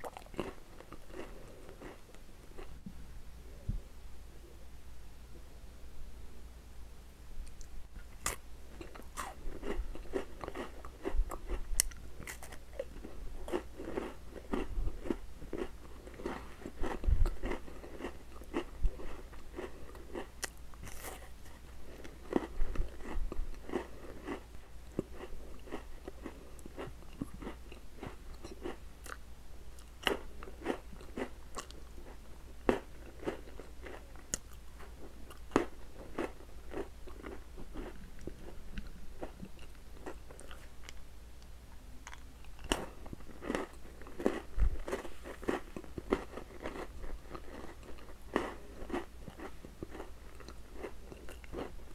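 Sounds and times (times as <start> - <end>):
crunchy wafer biting and chewing: 8.2 - 21.3, 22.0 - 29.2, 35.2 - 41.0, 42.0 - 51.8.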